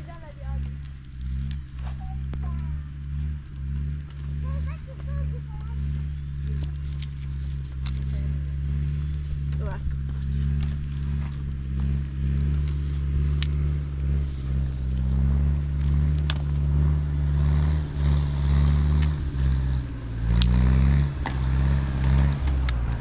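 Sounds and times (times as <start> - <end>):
sharp clicks and rattles: 0.0 - 23.0
vehicle engine running: 0.0 - 23.0.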